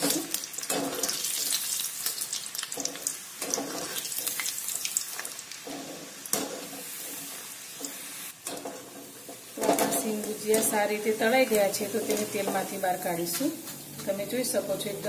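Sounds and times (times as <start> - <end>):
food deep-frying in oil: 0.0 - 15.0.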